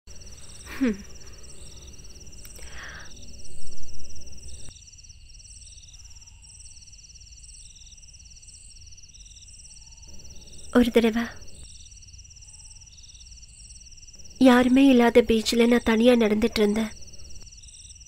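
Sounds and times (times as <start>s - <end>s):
crickets chirping: 0.1s - 18.0s
faint hum: 0.1s - 18.0s
short breathy sound: 2.5s - 3.3s.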